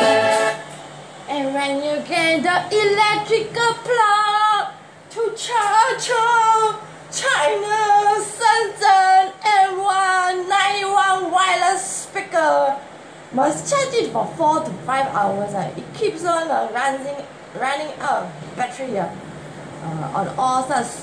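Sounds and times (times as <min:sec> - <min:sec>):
music track: 0:00.0 - 0:00.8
woman singing unaccompanied: 0:01.3 - 0:12.8.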